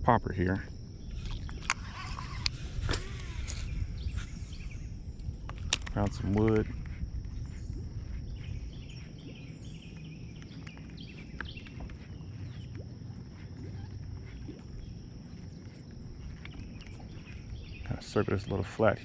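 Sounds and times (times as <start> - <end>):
birds chirping: 1.0 - 19.0
faint ticks: 5.2 - 17.9.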